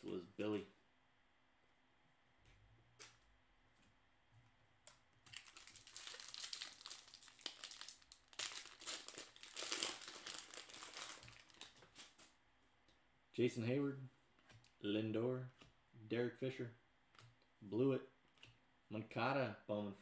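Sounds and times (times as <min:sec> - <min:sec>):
wrapper tearing and crinkling: 0:05.2 - 0:12.3.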